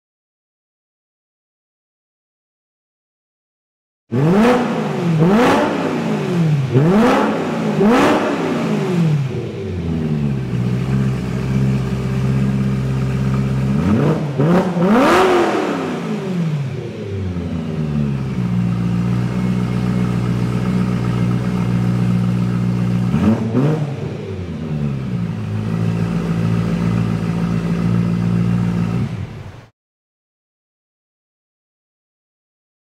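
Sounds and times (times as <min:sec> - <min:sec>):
unmuffled car engine revving: 0:04.1 - 0:29.7.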